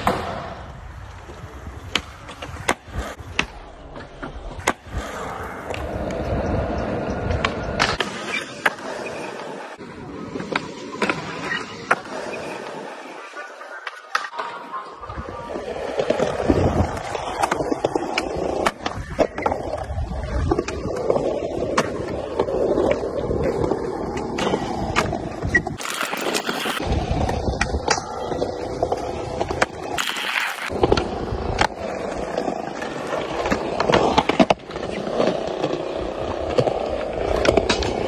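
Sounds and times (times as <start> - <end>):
skateboard wheels rolling on concrete: 0.0 - 38.0
skateboard popping and landing clacks: 1.8 - 9.6.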